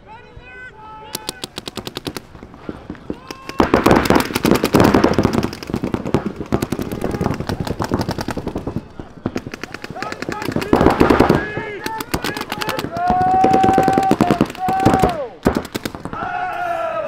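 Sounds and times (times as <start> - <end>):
paintball markers firing: 1.1 - 16.2.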